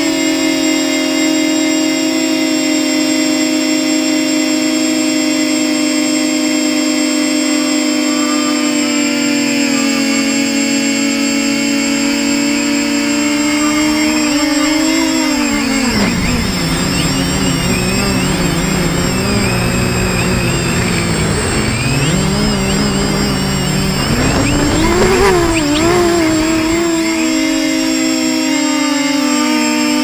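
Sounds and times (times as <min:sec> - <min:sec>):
drone motors whining: 0:00.0 - 0:30.0
rushing noise: 0:13.7 - 0:28.0.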